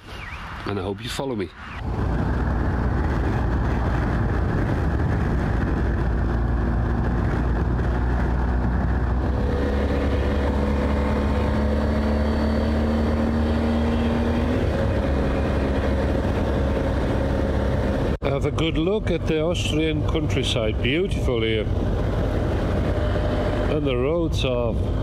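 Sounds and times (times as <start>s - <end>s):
wind rushing over microphone: 0.0s - 25.0s
motorcycle engine running: 2.2s - 18.2s.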